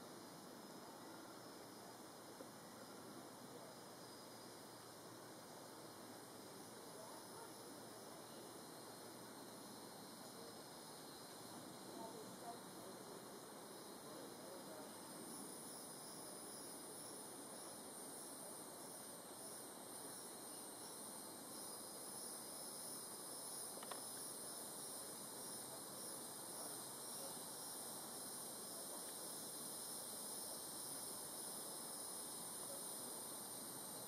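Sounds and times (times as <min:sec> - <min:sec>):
faint hiss: 0:00.0 - 0:34.0
insects trilling: 0:00.0 - 0:34.0
small click: 0:23.8 - 0:24.1.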